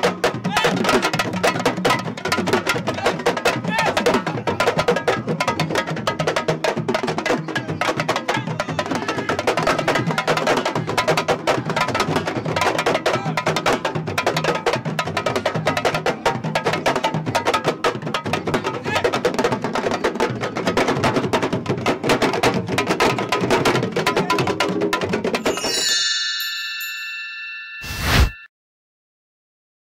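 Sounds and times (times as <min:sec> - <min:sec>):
fast dense drumming: 0:00.0 - 0:25.5
chime-like tones: 0:25.4 - 0:28.5
whoosh: 0:27.8 - 0:28.5.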